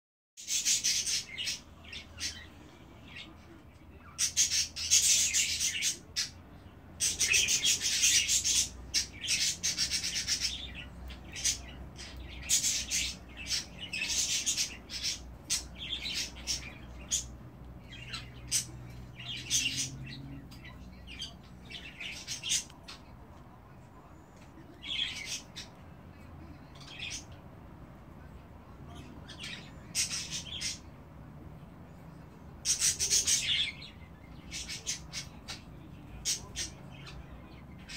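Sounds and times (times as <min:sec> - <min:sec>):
budgerigars chirping: 0:00.4 - 0:02.4, 0:04.1 - 0:06.4, 0:07.0 - 0:17.3, 0:28.9 - 0:30.9, 0:32.6 - 0:37.2.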